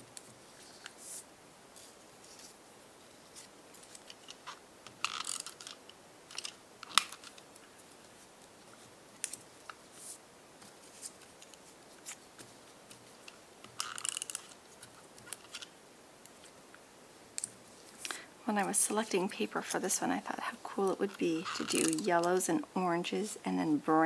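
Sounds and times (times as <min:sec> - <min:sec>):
paper rustling and crackling: 0:01.8 - 0:15.7.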